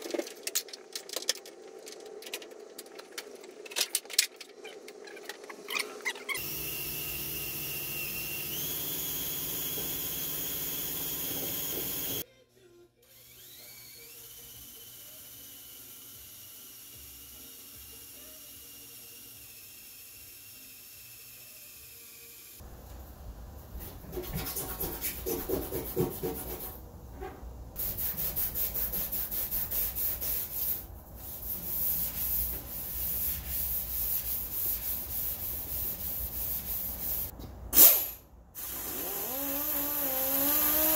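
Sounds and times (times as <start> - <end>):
grinder disc whirring on steel: 6.2 - 12.2
cordless tool motor running: 6.4 - 12.2, 13.1 - 22.6, 38.6 - 40.9.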